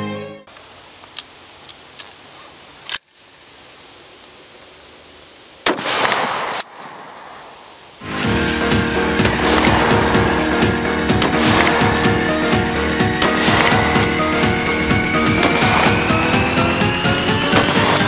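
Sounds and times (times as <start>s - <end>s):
shotgun blast with echo: 5.7s - 7.5s, 9.2s - 16.6s, 17.5s - 18.0s.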